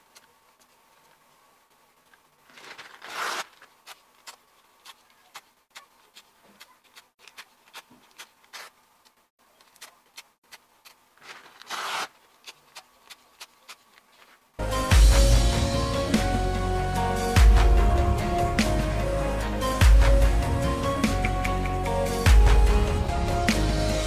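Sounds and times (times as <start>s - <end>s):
paper rustling: 2.0s - 5.4s, 11.2s - 14.5s
paper ripping: 2.4s - 8.8s, 11.2s - 14.4s.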